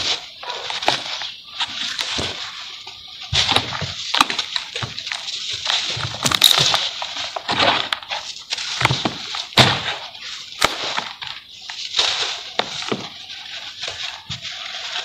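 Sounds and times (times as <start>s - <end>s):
sharp cracks: 3.4s - 11.4s.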